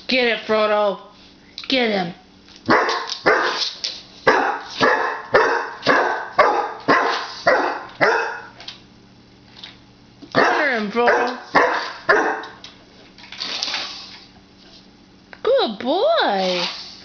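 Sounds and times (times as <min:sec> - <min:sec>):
puppy barking: 0:02.7 - 0:03.6, 0:04.3 - 0:08.6, 0:10.3 - 0:12.6.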